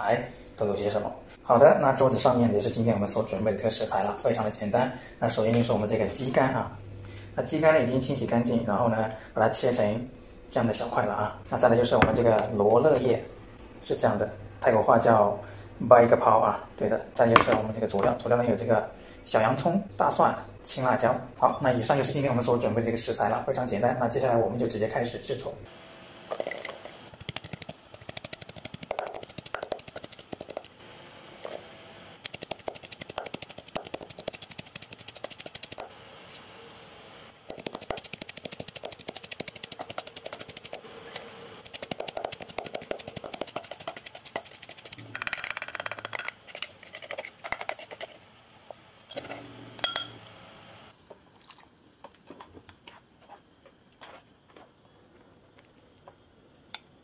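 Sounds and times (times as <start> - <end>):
pestle pounding in wooden mortar: 27.2 - 30.7, 32.3 - 35.9, 37.5 - 40.8, 41.6 - 46.2.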